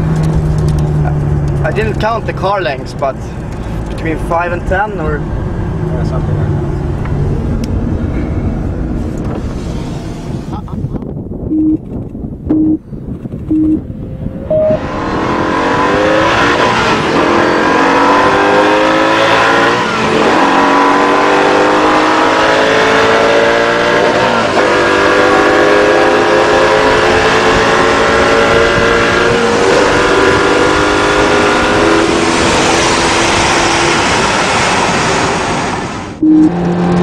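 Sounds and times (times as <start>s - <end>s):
race car engine at full throttle: 0.0s - 37.0s
short beep: 11.5s - 11.8s, 12.5s - 12.8s, 13.5s - 13.8s, 14.4s - 14.8s, 36.2s - 36.6s.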